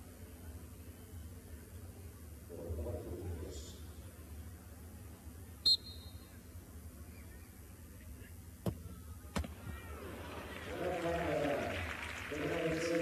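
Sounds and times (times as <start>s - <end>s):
stadium background rumble: 5.0s - 13.0s
referee's whistle blast: 5.6s - 6.2s.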